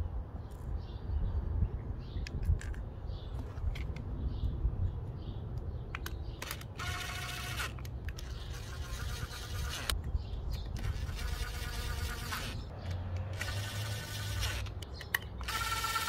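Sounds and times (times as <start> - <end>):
cordless drill whirring: 6.8 - 9.9, 10.8 - 12.6, 13.4 - 14.7, 15.4 - 16.0.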